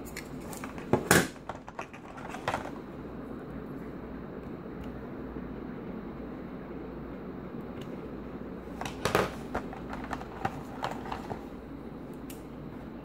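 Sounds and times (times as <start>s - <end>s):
steady low hum: 0.0s - 13.0s
plastic tray clicks and crackles: 8.8s - 11.4s.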